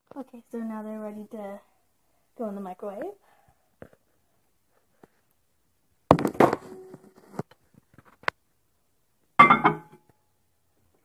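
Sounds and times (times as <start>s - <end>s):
bowl clinking on glass: 9.4s - 10.0s.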